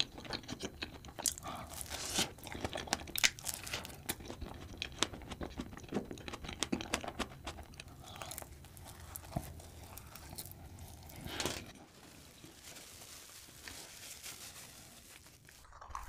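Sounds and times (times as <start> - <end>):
chewing with wet clicks: 0.0 - 11.2.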